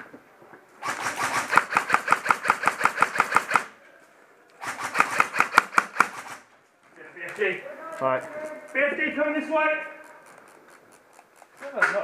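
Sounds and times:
airsoft rifle firing full-auto: 0.8s - 3.7s, 4.6s - 6.4s.

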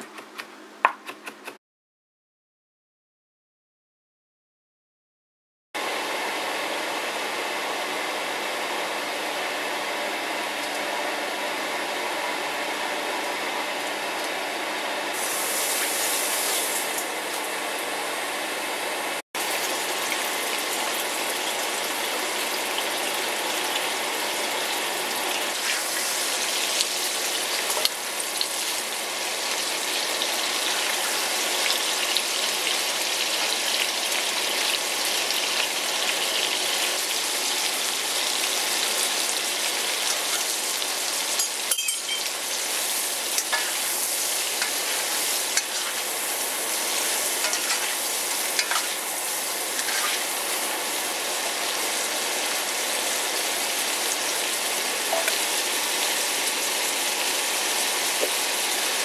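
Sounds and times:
oil hissing in a wok: 15.1s - 17.1s, 19.4s - 59.0s
shrimps sizzling in hot oil: 15.2s - 17.1s, 19.4s - 59.0s
spatula scraping a wok: 42.7s - 50.6s.

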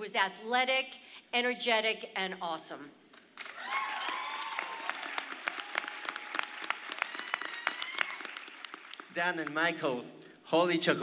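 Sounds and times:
audience applauding: 3.4s - 9.7s.

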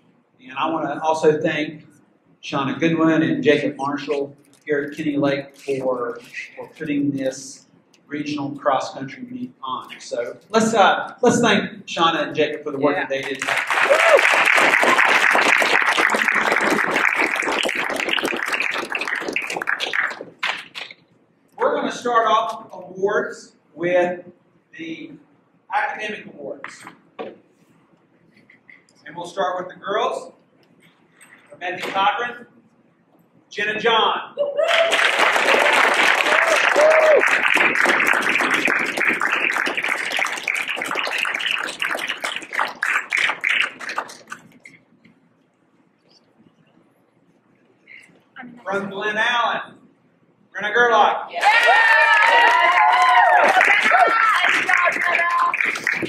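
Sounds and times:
audience applauding: 13.1s - 20.9s, 34.6s - 44.4s, 51.4s - 56.0s.

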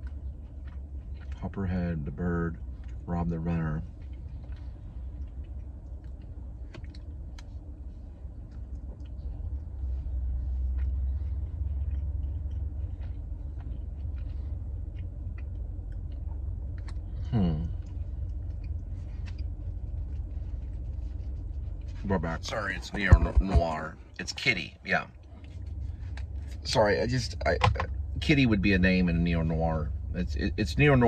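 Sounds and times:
man chewing a cookie: 0.0s - 22.0s, 25.1s - 26.7s
low rumble inside a car: 0.0s - 31.0s.

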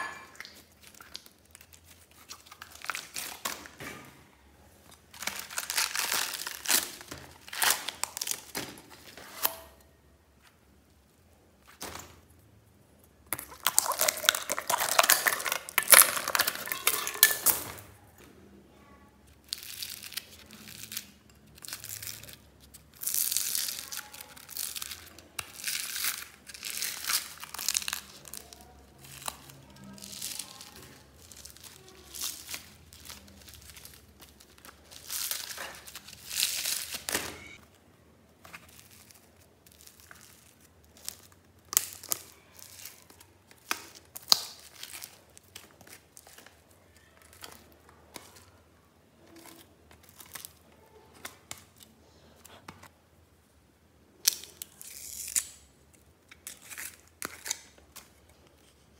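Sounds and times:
foam beads crackling and rustling: 0.0s - 3.8s, 4.8s - 9.5s, 13.3s - 17.8s, 19.2s - 52.6s, 54.2s - 58.9s
plastic bag crinkling: 0.0s - 3.8s, 4.8s - 9.6s, 13.3s - 18.0s, 19.3s - 52.6s.

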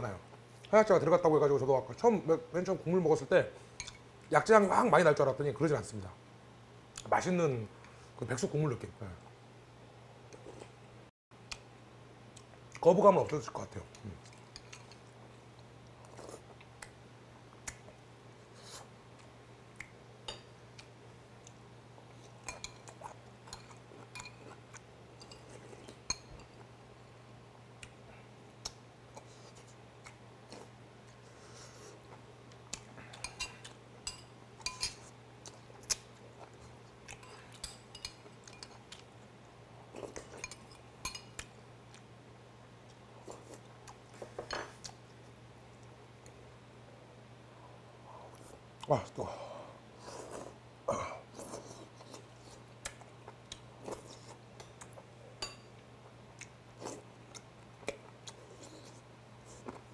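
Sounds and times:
quiet chewing: 51.3s - 59.9s.

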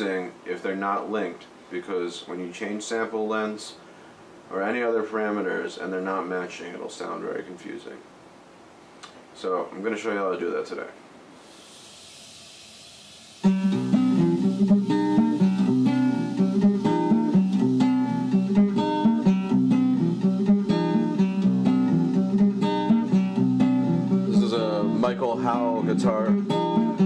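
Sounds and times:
faint hiss: 0.0s - 27.0s
guitar solo notes and strums: 13.4s - 27.0s.

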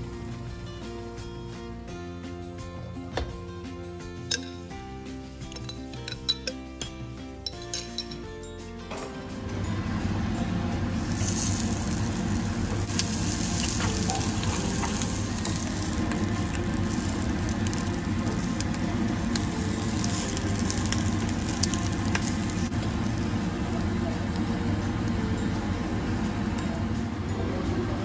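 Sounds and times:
meat sizzling in frying pan: 11.0s - 25.5s.

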